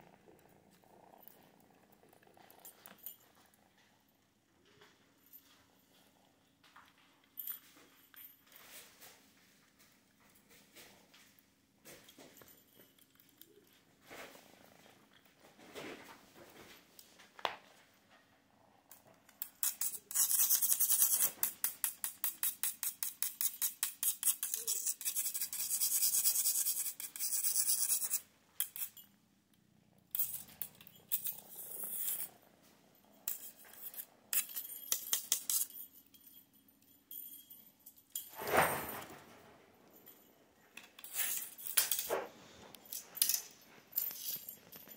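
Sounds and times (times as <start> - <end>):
small bell jingling: 33.1 - 38.4.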